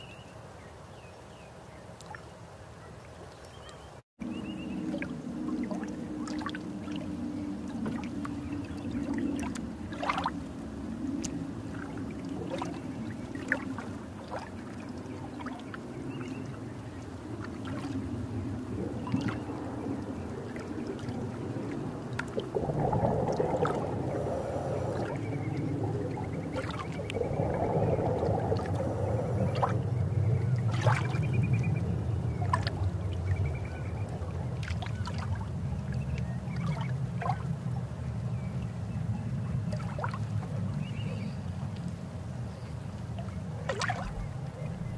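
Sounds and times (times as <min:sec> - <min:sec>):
water bubbling and gurgling: 0:04.2 - 0:38.5, 0:39.5 - 0:41.8, 0:42.5 - 0:44.9
low steady rumble: 0:04.2 - 0:44.9.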